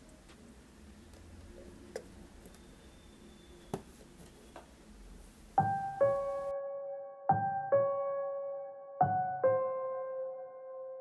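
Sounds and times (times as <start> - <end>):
quiet background music: 0.0 - 11.0
piano notes ringing: 5.6 - 11.0.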